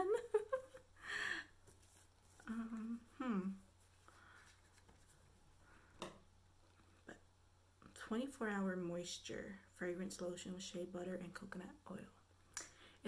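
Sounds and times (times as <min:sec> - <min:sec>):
woman laughing breathily: 0:00.0 - 0:01.6
woman humming: 0:02.4 - 0:03.6.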